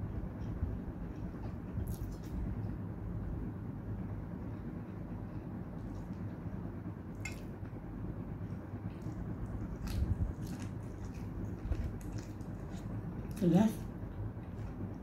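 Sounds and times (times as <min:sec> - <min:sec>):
steady low hum: 0:00.0 - 0:15.0
person biting and chewing: 0:08.9 - 0:13.4.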